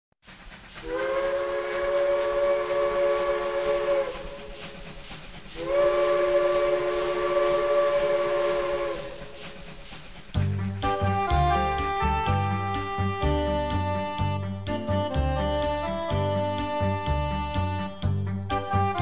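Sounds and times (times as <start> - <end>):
steam hissing: 0.2 - 14.2
steam locomotive chime whistle: 0.8 - 9.9, 10.8 - 19.0.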